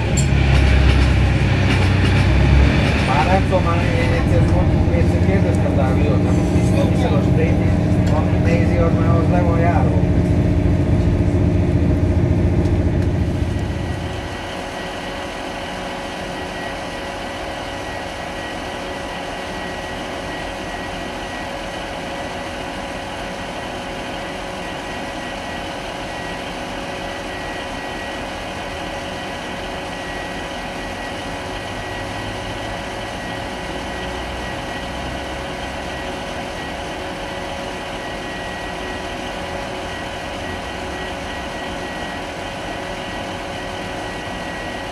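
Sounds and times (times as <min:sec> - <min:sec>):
diesel train engine idling: 0:00.0 - 0:44.9
train running rumble: 0:00.0 - 0:44.9
thin high whine: 0:02.6 - 0:22.3.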